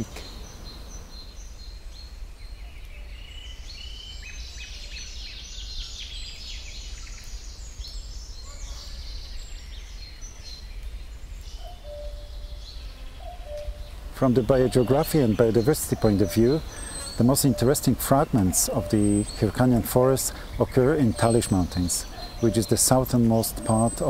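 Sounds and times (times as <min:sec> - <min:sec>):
birds chirping and trilling: 0:00.0 - 0:24.0
lower whistled bird notes: 0:00.0 - 0:24.0.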